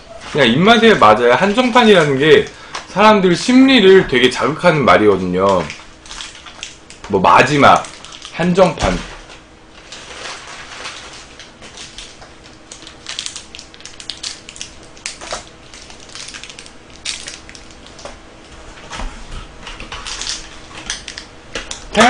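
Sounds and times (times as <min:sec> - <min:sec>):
plastic wrappers crinkling and tearing: 0:04.5 - 0:18.2, 0:19.8 - 0:22.0.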